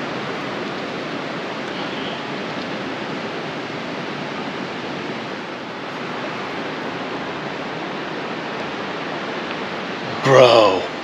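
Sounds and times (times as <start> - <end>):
waterfall rushing: 9.8 - 11.0.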